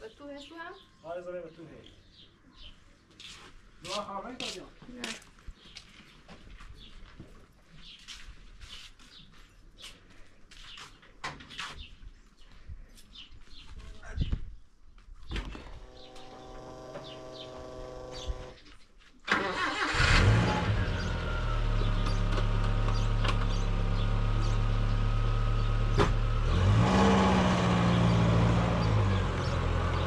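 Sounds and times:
engine starting and running: 15.4s - 18.6s, 19.3s - 30.0s.

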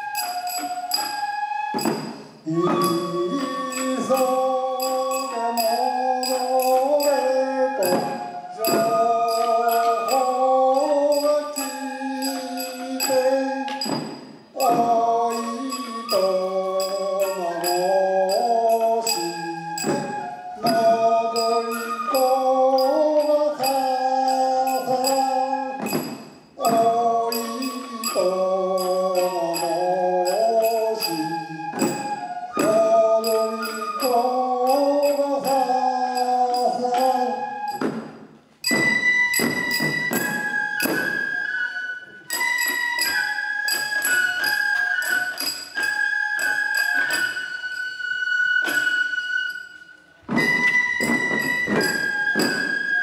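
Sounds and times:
high flute note: 0.0s - 29.7s, 38.6s - 53.0s
voices singing: 0.0s - 38.0s
drum strikes: 1.7s - 5.2s, 7.8s - 17.8s, 22.8s - 28.1s, 34.7s - 41.2s.

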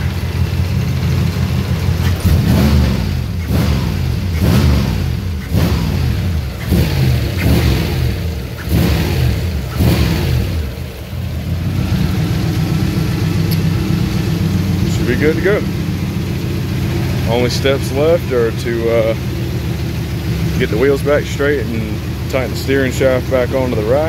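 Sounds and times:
car engine idling: 0.0s - 24.0s
car engine revving: 0.0s - 24.0s.

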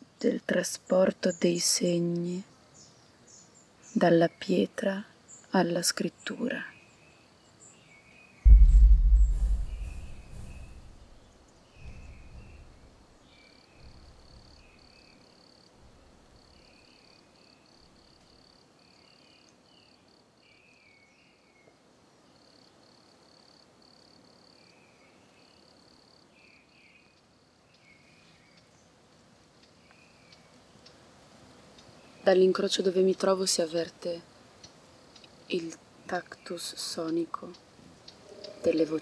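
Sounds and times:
low rumble: 8.5s - 11.2s
crickets chirping: 13.5s - 19.2s.

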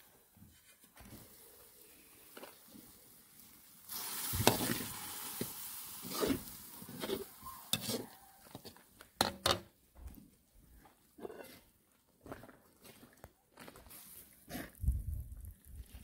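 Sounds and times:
tomatoes sizzling in oil: 0.0s - 8.8s
metal spoon scraping wok: 4.4s - 5.0s, 6.0s - 9.6s, 11.2s - 11.6s.

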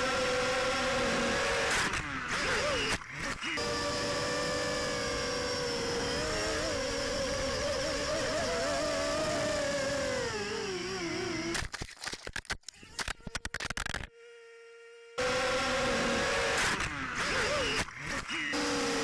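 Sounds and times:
quadcopter motors whining: 0.0s - 19.0s.

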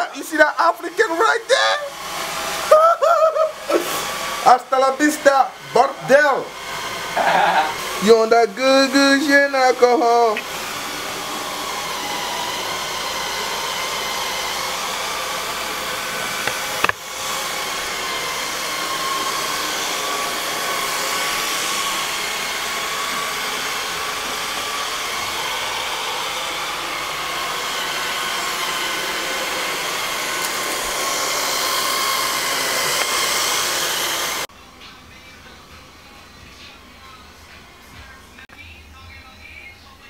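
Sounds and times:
robot vacuum motor whine: 5.5s - 34.5s.

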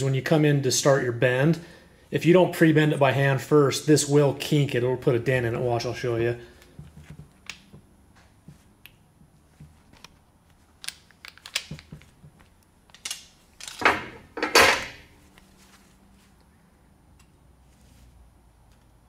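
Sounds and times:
tube and tool clicks and knocks: 10.8s - 14.0s.

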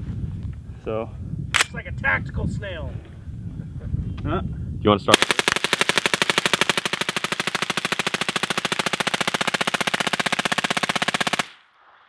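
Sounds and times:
suppressed rifle automatic fire: 5.1s - 11.6s.

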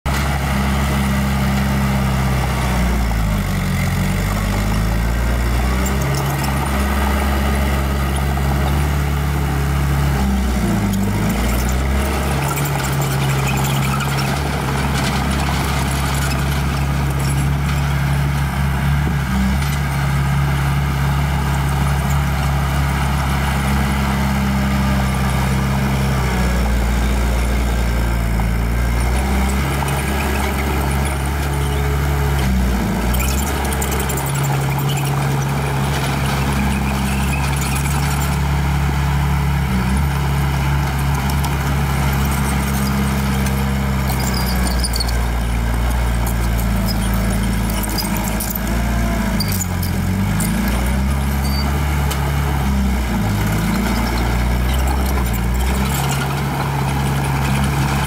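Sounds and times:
diesel engine running under load: 0.1s - 58.0s.

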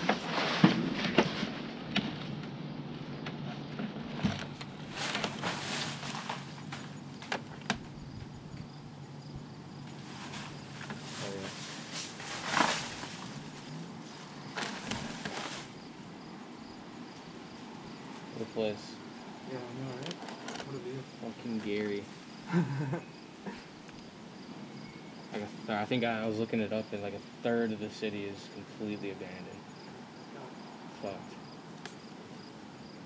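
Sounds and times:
rustles and small knocks: 0.0s - 8.8s, 9.4s - 16.0s, 19.9s - 20.8s
steady low hum: 0.0s - 20.0s
insects buzzing and chirping: 0.0s - 33.0s.

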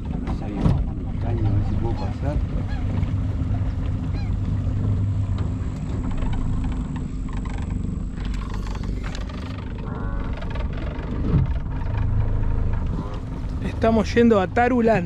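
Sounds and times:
outboard motor droning: 0.0s - 15.0s
wind: 0.0s - 15.0s
water rushing: 8.3s - 15.0s.

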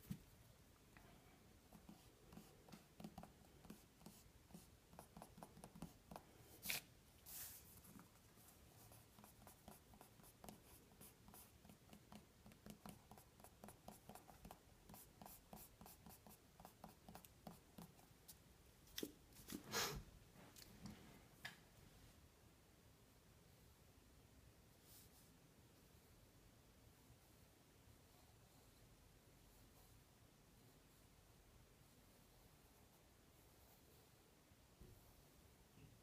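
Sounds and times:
pencil scratching on paper: 1.6s - 18.2s, 31.8s - 34.3s.

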